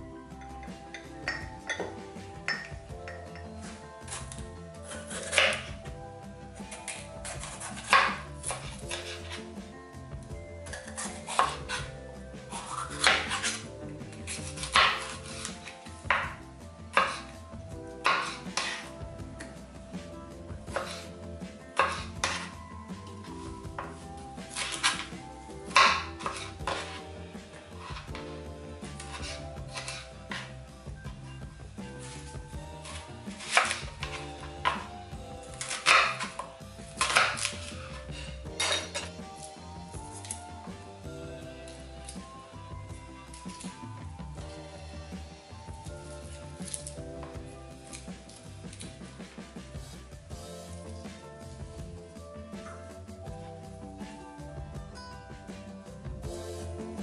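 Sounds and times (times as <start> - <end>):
knife slicing pepper on board: 6.8 - 9.4, 10.9 - 11.8, 12.6 - 13.6, 17.0 - 17.2, 18.0 - 18.9, 20.7 - 21.1, 25.7 - 27.0, 29.0 - 30.5, 32.9 - 34.9, 35.5 - 37.9.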